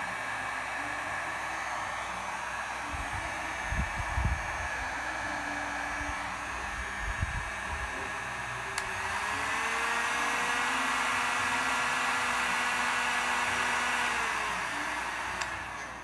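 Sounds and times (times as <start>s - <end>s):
heat gun fan blowing: 0.0s - 16.0s
heat gun switch click: 8.7s - 9.0s, 15.4s - 16.0s.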